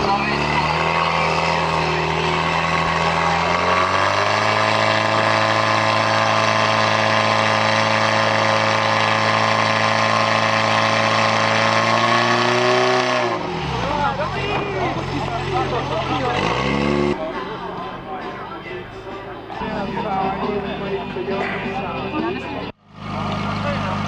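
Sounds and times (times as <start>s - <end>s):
pump engine revving: 0.0s - 17.2s, 22.8s - 24.0s.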